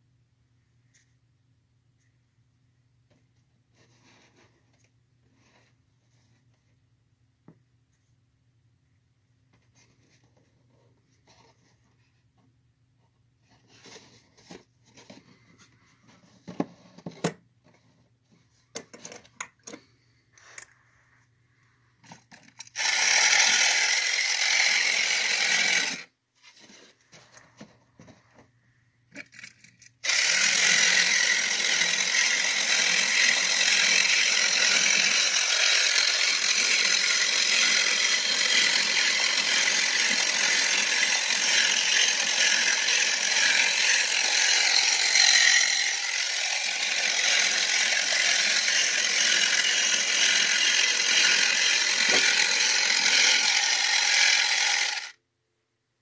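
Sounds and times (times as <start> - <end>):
toy motor grinding whir: 22.1 - 26.1, 29.2 - 55.2.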